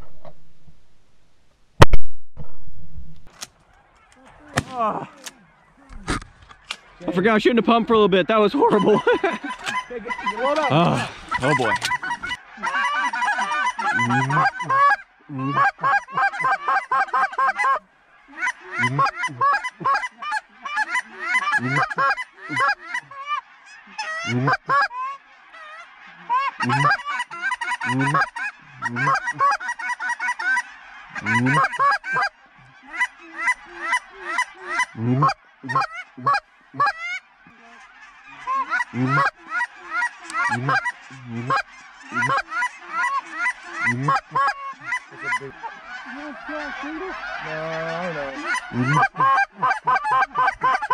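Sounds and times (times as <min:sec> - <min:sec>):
flock of geese honking: 0:03.6 - 0:50.9.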